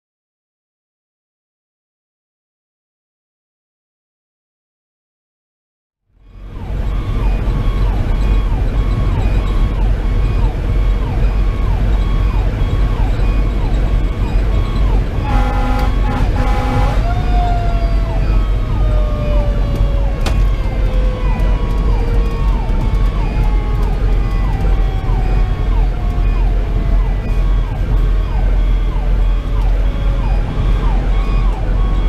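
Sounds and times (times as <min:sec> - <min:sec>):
road noise: 0:06.1 - 0:32.0
diesel engine running: 0:06.2 - 0:32.0
electronic siren sweeping: 0:06.2 - 0:32.0
horn blasts: 0:15.2 - 0:17.4
mechanical siren winding: 0:19.7 - 0:32.0.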